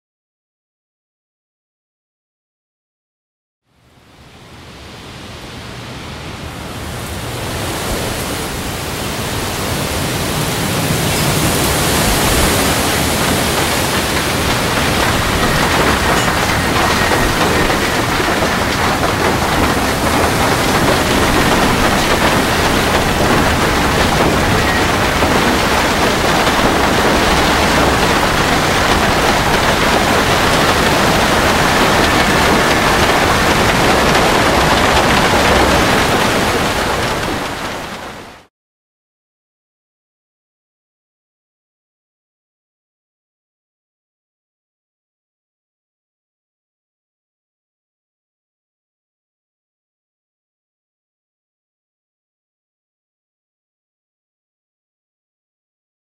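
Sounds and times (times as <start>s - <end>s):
rain and hail falling hard: 6.4s - 38.5s.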